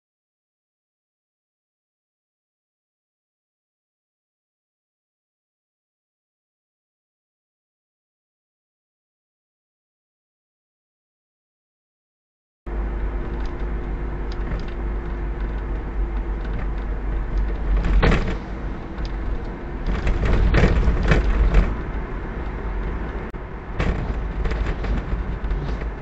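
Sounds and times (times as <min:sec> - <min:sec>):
car engine and road rumble: 0:12.7 - 0:26.0
knocks and rattles: 0:14.3 - 0:26.0.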